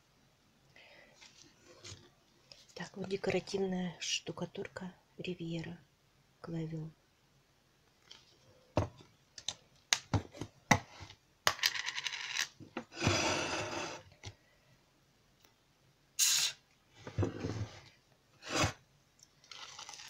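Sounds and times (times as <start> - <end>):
plastic rustle: 19.4 - 20.0.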